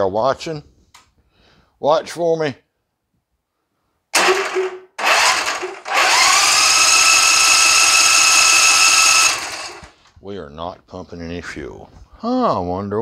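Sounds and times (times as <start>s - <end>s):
mower starter cranking engine: 4.2s - 10.0s.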